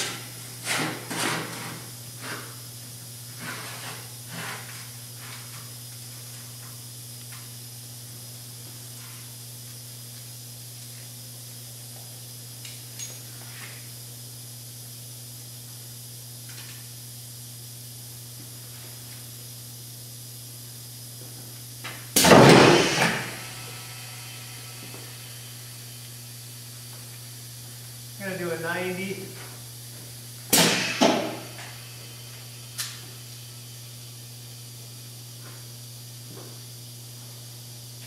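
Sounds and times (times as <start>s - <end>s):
machine low hum: 0.0s - 38.0s.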